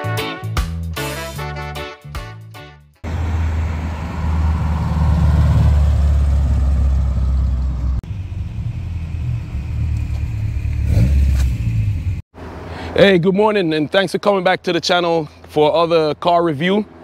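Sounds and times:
car engine driving past: 3.0 - 12.0.

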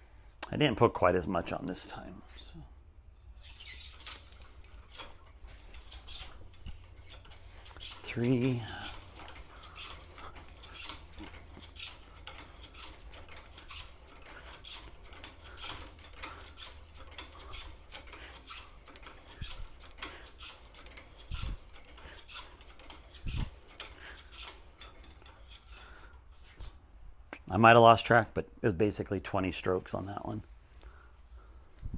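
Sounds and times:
cleaning rod scraping in rifle barrel: 3.2 - 26.8.

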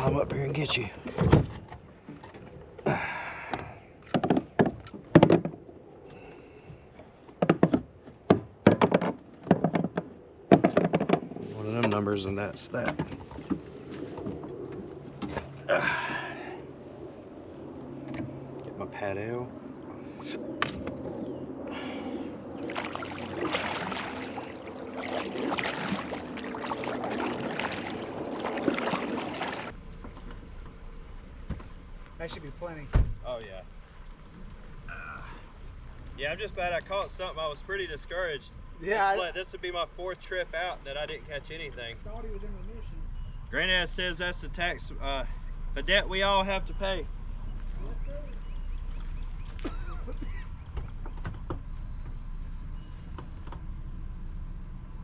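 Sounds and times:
knocks against plastic kayak: 7.4 - 11.3
steady low hum: 9.5 - 55.0
paddle splashing water: 21.8 - 29.8, 48.3 - 50.3.

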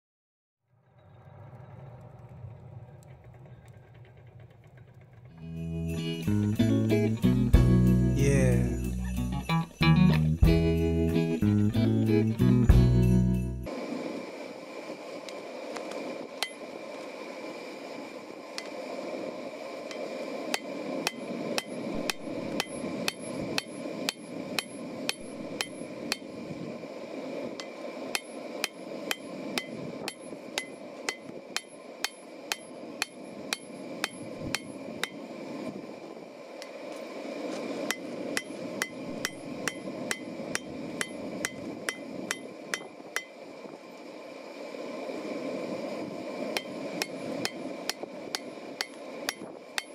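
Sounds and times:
hammer striking steel on anvil: 20.6 - 26.2, 27.6 - 35.2, 37.9 - 43.3, 46.6 - 49.9.

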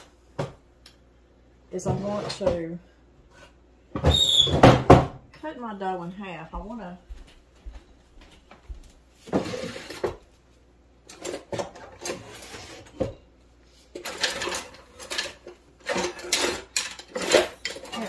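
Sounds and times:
kitchen utensils clattering: 13.9 - 18.0.

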